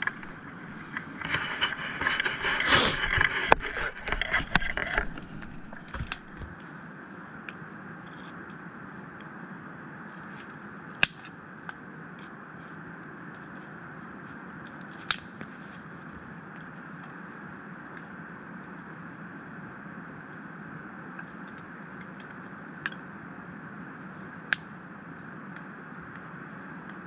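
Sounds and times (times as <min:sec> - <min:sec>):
scraping and rustling: 0:00.0 - 0:06.6
steady rushing noise: 0:00.0 - 0:07.4.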